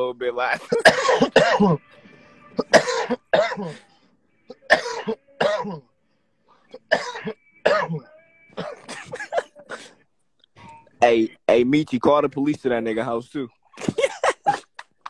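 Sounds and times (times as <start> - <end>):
person coughing: 0.6 - 1.8, 2.6 - 3.9, 4.5 - 5.9, 6.7 - 10.0, 13.8 - 14.7.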